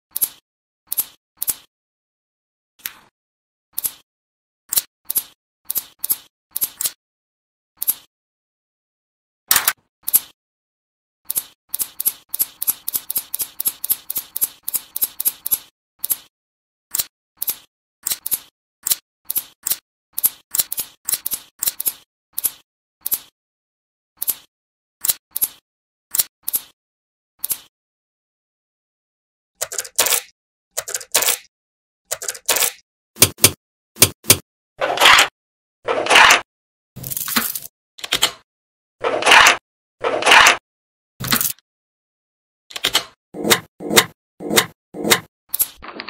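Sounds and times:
magnet balls rattling and scraping: 37.0 - 37.7, 41.2 - 41.6.

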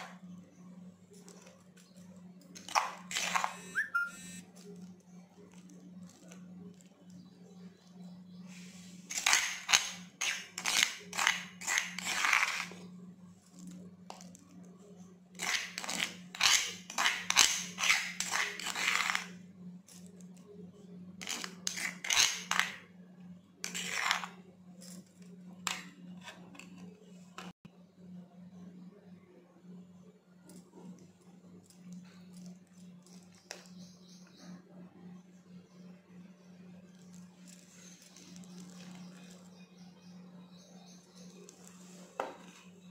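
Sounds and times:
steady low hum: 0.0 - 42.9
spoon scraping stone mortar: 1.1 - 22.9, 23.6 - 27.6.

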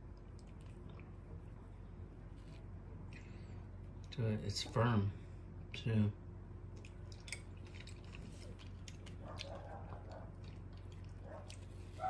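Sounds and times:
person chewing fruit: 0.0 - 4.1, 6.7 - 12.0.

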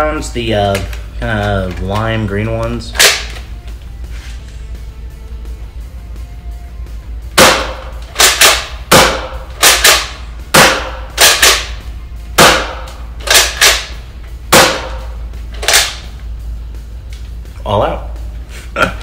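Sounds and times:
bolt-action clacking: 2.9 - 3.5, 8.0 - 8.7, 9.6 - 11.8, 12.4 - 14.0, 15.6 - 16.1.

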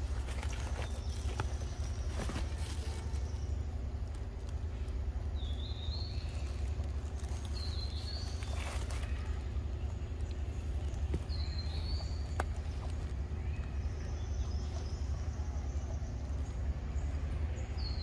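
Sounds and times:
rustle: 0.0 - 18.0.

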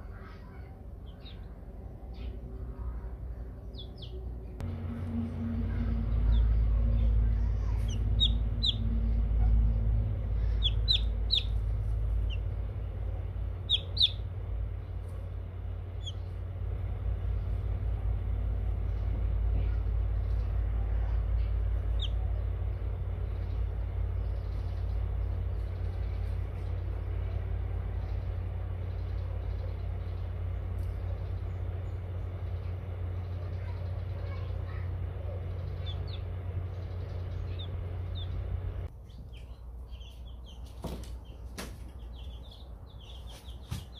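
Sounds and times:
steady low hum: 0.0 - 43.9
chicks peeping: 1.0 - 1.6, 3.6 - 4.6, 6.0 - 14.3, 15.9 - 16.4, 21.8 - 26.8, 27.9 - 43.9.

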